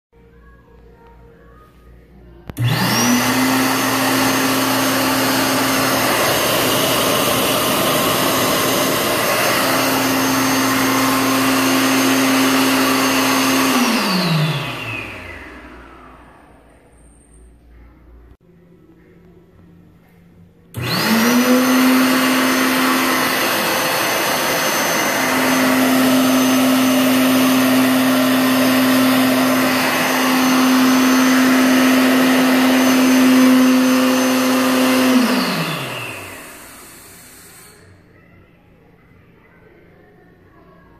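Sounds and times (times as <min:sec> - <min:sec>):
hand dryer motor and air rush: 0:02.5 - 0:16.8, 0:20.7 - 0:38.0.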